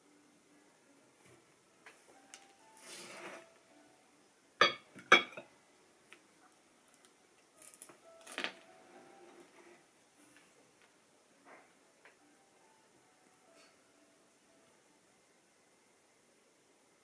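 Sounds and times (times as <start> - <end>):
ceramic bowl clinking on table: 4.6 - 5.5.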